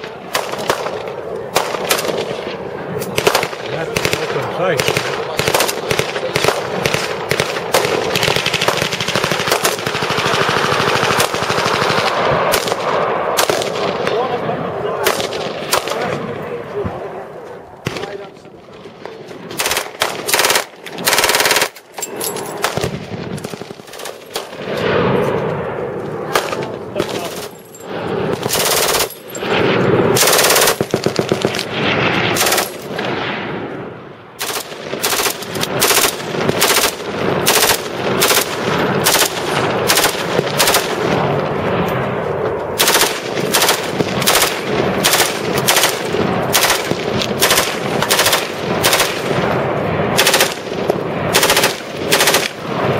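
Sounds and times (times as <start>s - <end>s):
machine gun bursts: 19.6s - 21.8s, 28.4s - 29.2s, 30.2s - 31.6s, 32.4s - 32.8s, 34.4s - 41.0s, 42.8s - 49.2s, 50.2s - 50.6s, 51.3s - 52.6s.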